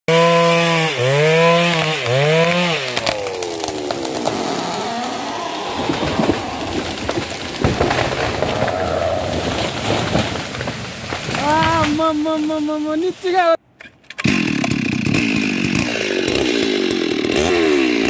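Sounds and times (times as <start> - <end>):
chainsaw running: 0.1 - 13.5, 14.2 - 18.0
branches cracking and snapping: 0.2 - 18.0
tree crashing down: 1.2 - 13.5.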